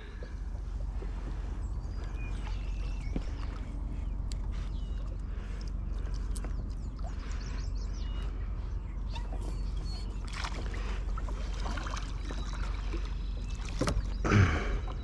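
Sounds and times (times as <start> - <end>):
steady low rumble: 0.0 - 15.0
water sloshing around kayak: 0.0 - 15.0
water splashing: 10.2 - 15.0.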